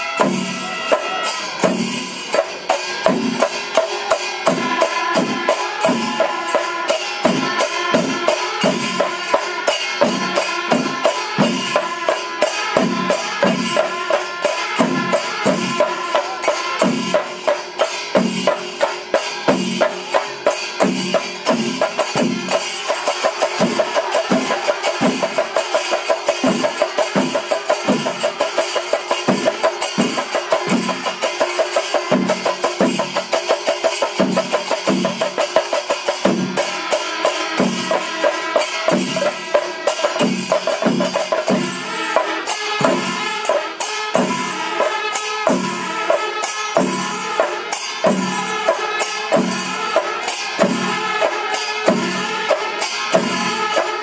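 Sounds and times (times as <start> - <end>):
pipes and horns playing: 0.0 - 17.5, 21.5 - 32.5, 41.4 - 54.0
cymbals clashing: 0.0 - 54.0
drums beating steady rhythm: 0.0 - 54.0.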